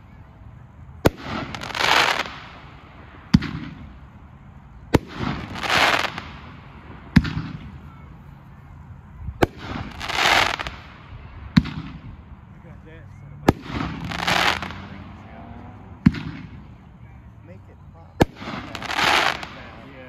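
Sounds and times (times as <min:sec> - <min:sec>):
firework reports: 0:00.0 - 0:20.0
firework bursts hissing: 0:01.0 - 0:04.0, 0:04.9 - 0:07.8, 0:09.4 - 0:11.8, 0:13.5 - 0:14.9, 0:18.2 - 0:19.8.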